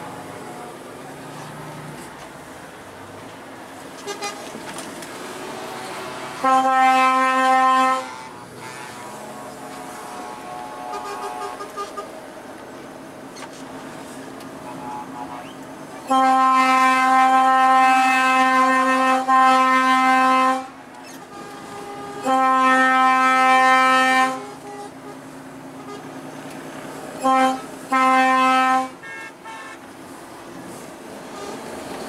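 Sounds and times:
truck engine and road noise: 0.0s - 32.0s
truck air horn blasts: 4.0s - 4.4s, 6.3s - 12.2s, 14.7s - 25.2s, 25.8s - 26.2s, 27.1s - 29.9s.

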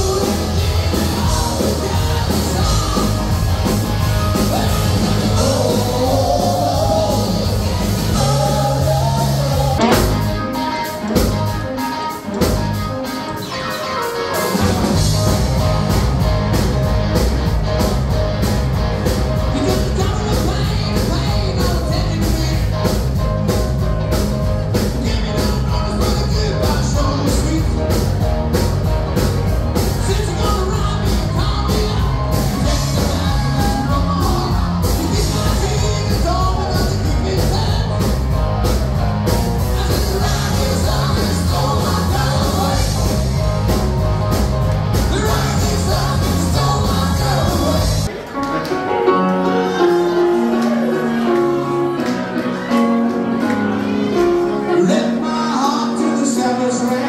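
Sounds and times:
person singing: 0.0s - 11.1s, 30.0s - 38.5s, 39.6s - 43.5s, 44.9s - 48.2s, 48.8s - 57.0s
live rock band playing: 0.0s - 57.0s.

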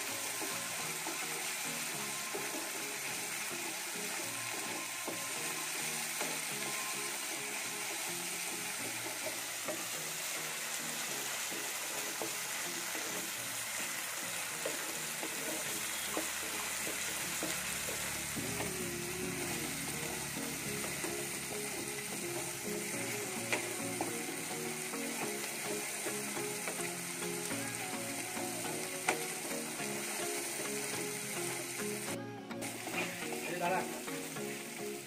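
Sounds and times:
paste frying and sizzling: 0.0s - 35.0s
wooden spatula stirring: 11.3s - 26.8s.

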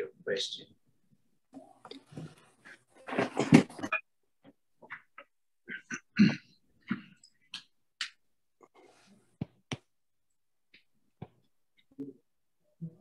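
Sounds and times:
person clearing throat and coughing: 5.7s - 7.1s.

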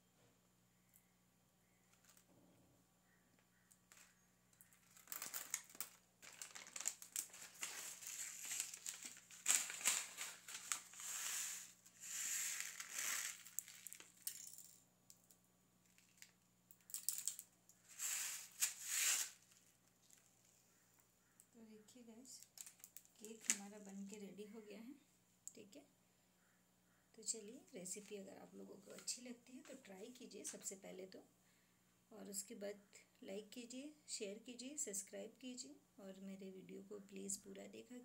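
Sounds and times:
plastic bag crinkling: 3.9s - 14.5s, 15.8s - 20.2s, 22.4s - 24.1s.

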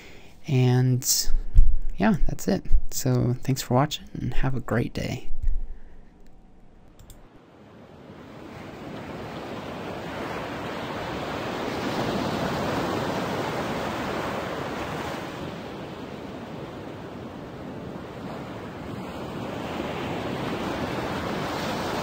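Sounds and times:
ocean waves washing: 7.2s - 22.0s.

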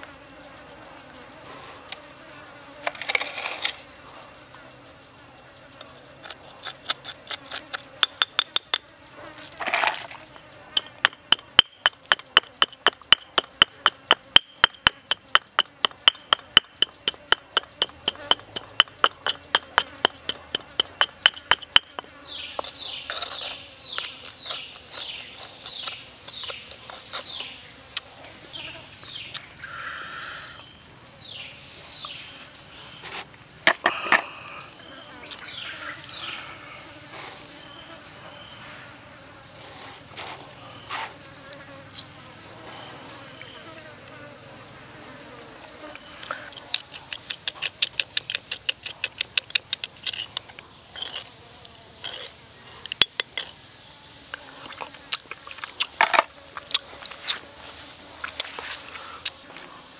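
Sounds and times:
pestle pounding in stone mortar: 10.8s - 22.7s.

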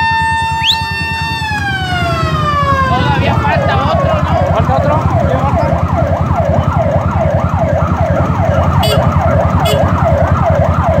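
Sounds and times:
electronic siren yelping: 0.0s - 11.0s.

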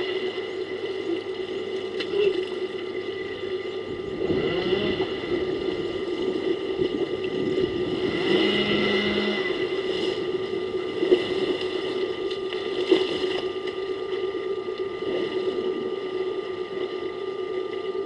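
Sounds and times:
steady mechanical hum: 0.0s - 18.0s
rising and falling pitch glides: 3.9s - 10.5s.

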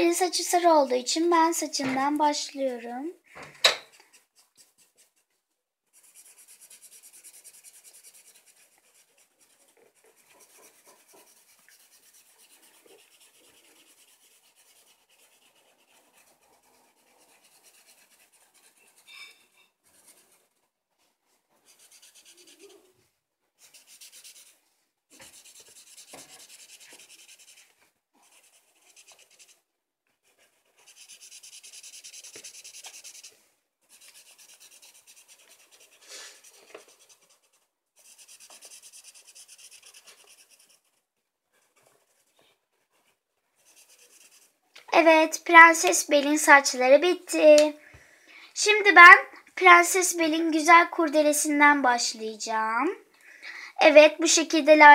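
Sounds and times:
marker scratching on paper: 3.8s - 5.3s, 5.9s - 20.6s, 21.6s - 23.0s, 23.6s - 29.6s, 30.2s - 41.0s, 41.6s - 47.8s.

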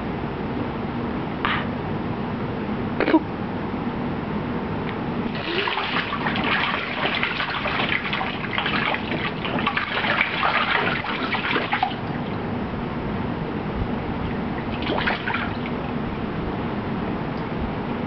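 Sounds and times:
baby splashing water in pool: 5.3s - 12.4s, 14.2s - 16.0s.

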